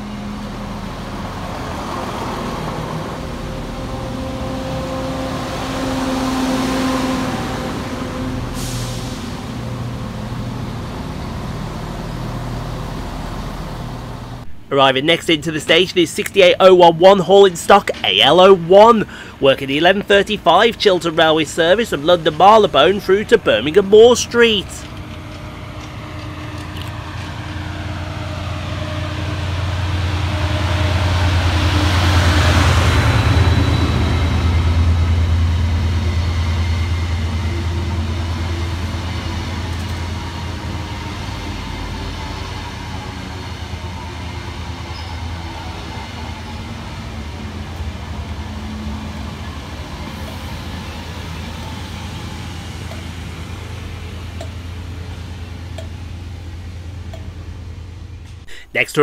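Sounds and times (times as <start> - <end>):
locomotive engine drone: 0.0 - 59.0
train coaches rumbling: 0.0 - 59.0
wheels on rails: 19.9 - 58.5.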